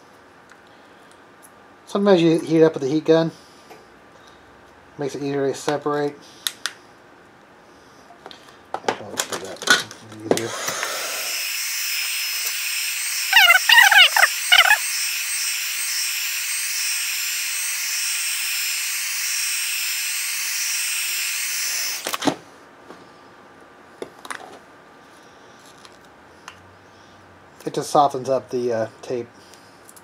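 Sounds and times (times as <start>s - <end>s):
heat gun fan hissing: 10.3s - 22.3s
short squeaky warble: 13.3s - 14.8s.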